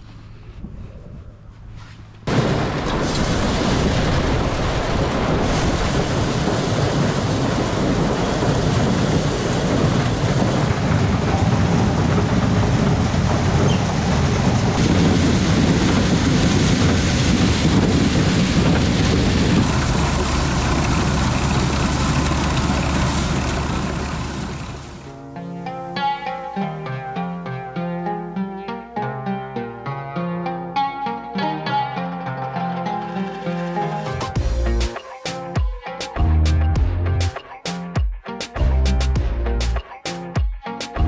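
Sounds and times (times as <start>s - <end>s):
dense rushing noise: 2.3s - 25.1s
farm machine engine drone: 6.0s - 25.2s.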